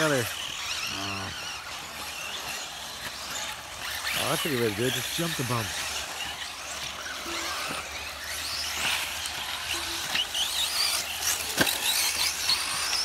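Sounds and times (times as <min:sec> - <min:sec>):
electric motors whining: 0:00.0 - 0:13.0.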